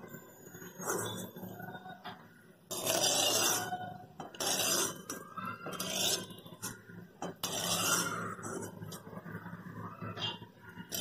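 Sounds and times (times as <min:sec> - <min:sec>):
metal spoon scraping metal pan: 0:00.5 - 0:01.4, 0:02.7 - 0:09.1, 0:10.2 - 0:11.0.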